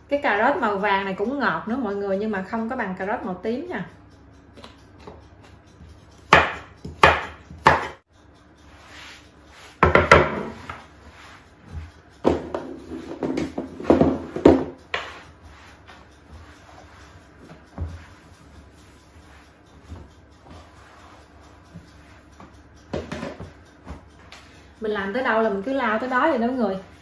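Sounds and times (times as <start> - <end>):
knife chopping on wooden board: 6.3 - 8.0, 9.8 - 10.8, 12.2 - 15.2
knocks and scrapes of board: 9.8 - 10.8.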